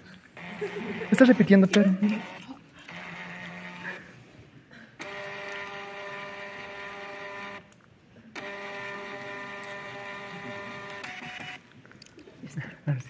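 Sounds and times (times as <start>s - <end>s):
thermal printer whining: 0.4s - 4.2s, 5.0s - 7.8s, 8.4s - 11.6s.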